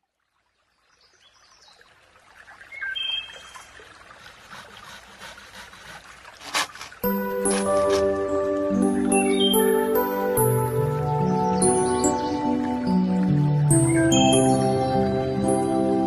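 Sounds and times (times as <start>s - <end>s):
gentle background music: 6.9s - 16.0s.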